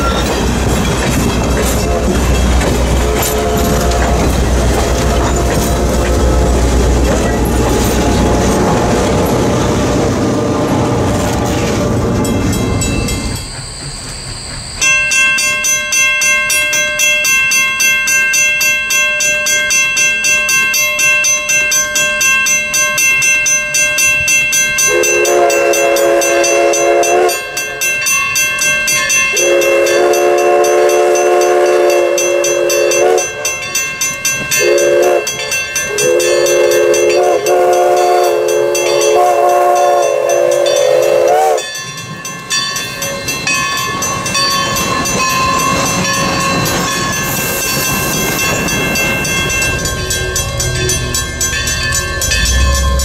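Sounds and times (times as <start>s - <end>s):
bell ringing steadily: 0.0s - 9.4s, 12.2s - 53.0s
train rumbling and rattling past: 0.0s - 18.5s, 19.5s - 53.0s
steam locomotive whistle blasts: 1.8s - 7.0s, 24.9s - 27.5s, 29.3s - 33.6s, 34.6s - 41.8s.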